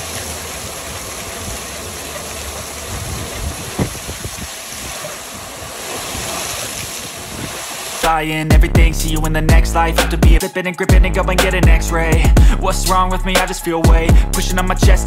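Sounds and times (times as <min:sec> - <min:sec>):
traffic: 0:00.0 - 0:04.0.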